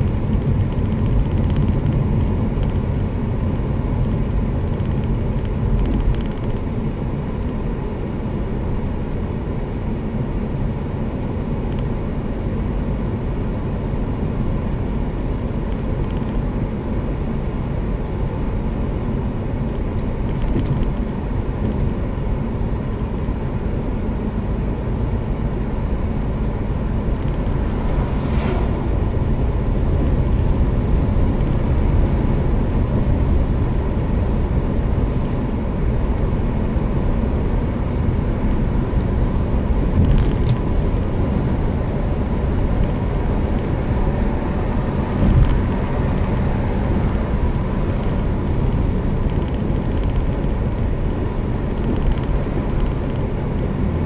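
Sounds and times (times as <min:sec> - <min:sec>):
car cabin road rumble: 0:00.0 - 0:54.0
brief higher rush: 0:27.6 - 0:29.6.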